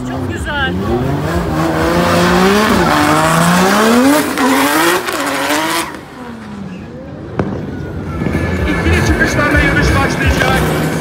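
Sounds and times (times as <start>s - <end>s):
car engine revving hard: 0.0s - 6.4s.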